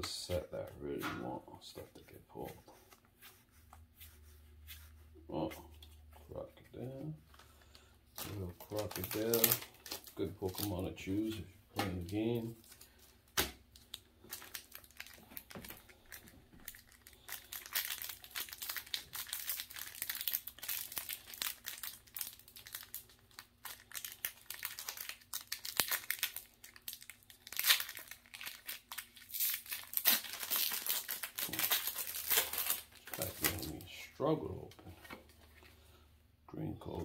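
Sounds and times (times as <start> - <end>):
foil wrapper crinkling and tearing: 7.4 - 11.4, 13.8 - 33.9.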